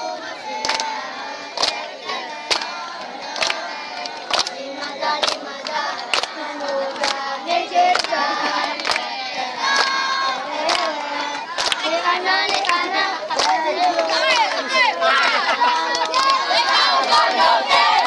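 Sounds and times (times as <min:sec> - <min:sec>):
boys singing together: 0:00.0 - 0:18.0
sharp hand claps: 0:00.6 - 0:07.2, 0:07.8 - 0:10.0, 0:10.6 - 0:14.8, 0:15.8 - 0:18.0.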